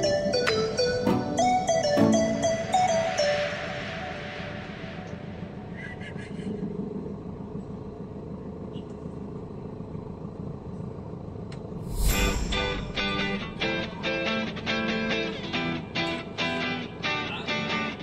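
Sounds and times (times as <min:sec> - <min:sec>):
loud guitar music: 0:00.0 - 0:05.6, 0:12.2 - 0:18.0
vehicle engine rumble: 0:00.0 - 0:18.0.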